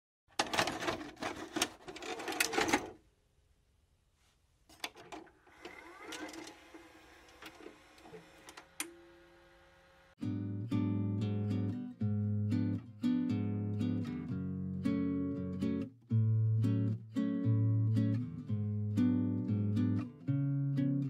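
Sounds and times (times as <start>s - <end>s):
tape mechanism clicking and clattering: 0.3s - 3.0s, 4.7s - 6.6s
rising whir: 5.5s - 10.2s
strummed acoustic guitar music: 10.2s - 21.0s.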